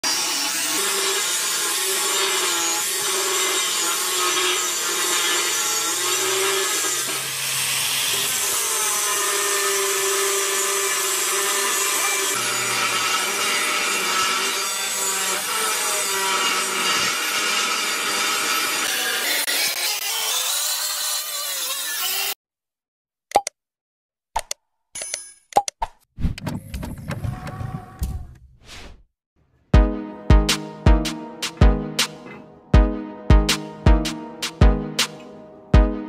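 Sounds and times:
angle grinder cutting steel: 0.0 - 22.4.

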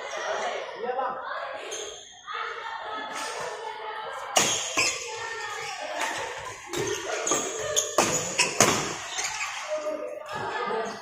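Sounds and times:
rackets hitting shuttlecock: 6.0 - 9.0.

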